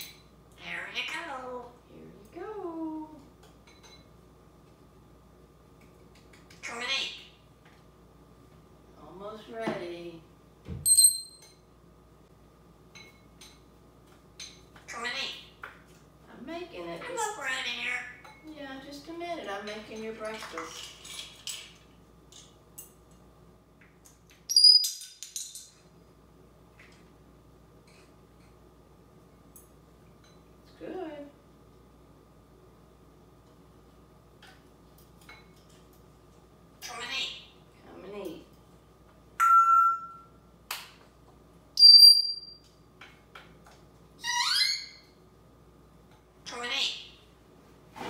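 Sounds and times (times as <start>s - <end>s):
sharp metallic clink: 10.9s - 11.6s
parrot rummaging in metal bowl: 20.1s - 21.8s
parrot rising chirps: 24.5s - 25.0s, 41.8s - 42.6s, 44.2s - 45.1s
parrot whistling: 24.5s - 25.0s, 41.8s - 42.6s, 44.2s - 45.1s.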